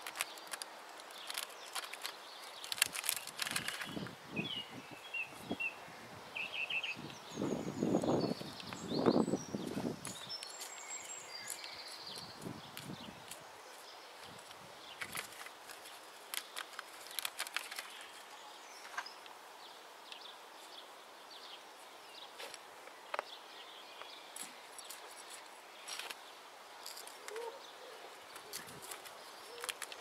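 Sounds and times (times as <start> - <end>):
hands scraping dry soil: 0.0 - 4.2, 9.6 - 19.2
steady outdoor hiss: 0.0 - 30.0.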